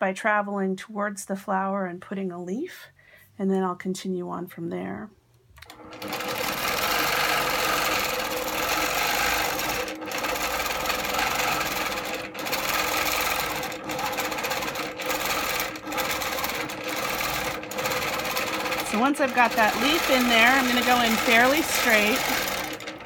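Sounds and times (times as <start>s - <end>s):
quilting machine stitching: 5.6s - 23.0s.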